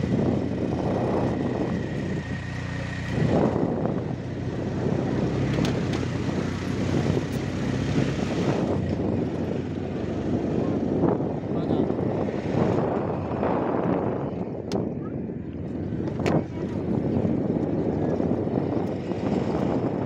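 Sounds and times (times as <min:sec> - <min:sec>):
rough rumble of dirt road: 0:00.0 - 0:20.0
vehicle engine running: 0:00.0 - 0:20.0.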